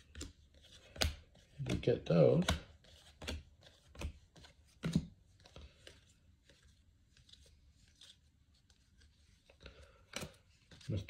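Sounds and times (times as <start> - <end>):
trading cards snapping and rustling: 0.0 - 6.6, 9.6 - 11.0.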